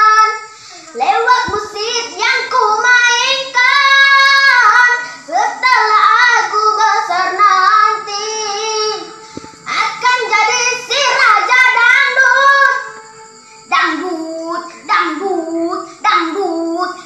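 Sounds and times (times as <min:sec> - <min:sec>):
boys singing: 0:01.0 - 0:12.8.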